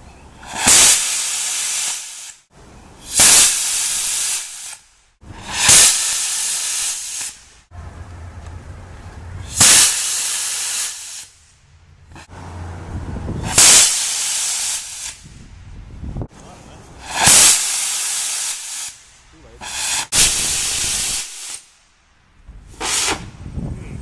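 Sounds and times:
rocket motor burn hissing: 0:05.4 - 0:07.4, 0:09.4 - 0:11.4, 0:13.4 - 0:15.3, 0:17.0 - 0:19.0, 0:19.6 - 0:21.7, 0:22.7 - 0:23.3.

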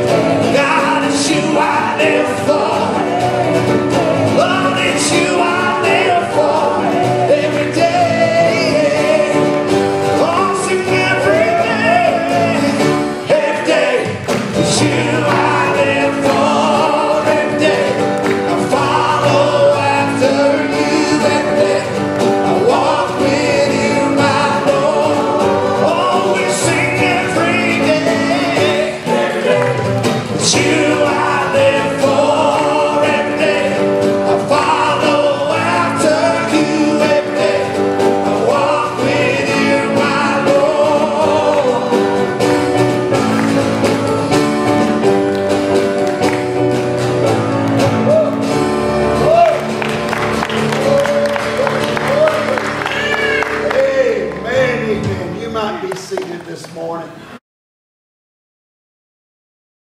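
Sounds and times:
singers: 0:00.0 - 0:46.4
worship band playing: 0:00.0 - 0:57.4.

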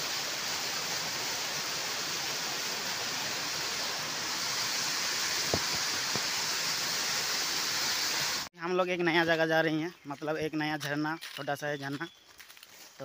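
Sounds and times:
waterfall rushing hiss: 0:00.0 - 0:08.5.

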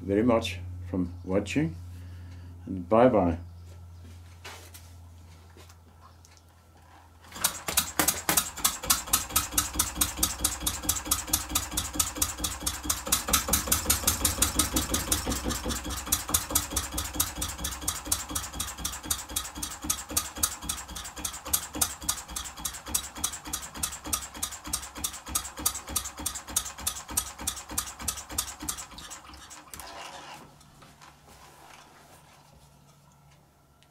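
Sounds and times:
model diesel engine knocking: 0:07.4 - 0:29.2.

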